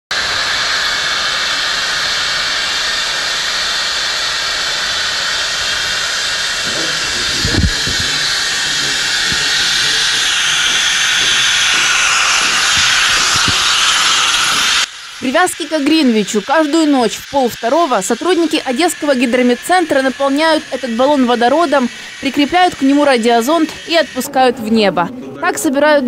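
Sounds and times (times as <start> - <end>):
gas hissing into balloon: 0.1 - 24.8.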